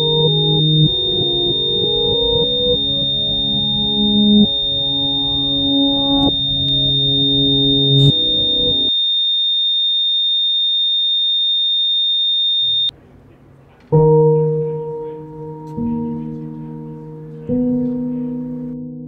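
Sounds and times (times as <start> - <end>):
deep sustained musical chords: 0.0 - 8.9, 14.0 - 19.0
low held chord: 0.0 - 8.9, 14.0 - 19.0
short low rumble: 0.0 - 8.9
high-pitched ringing tone: 0.0 - 12.9.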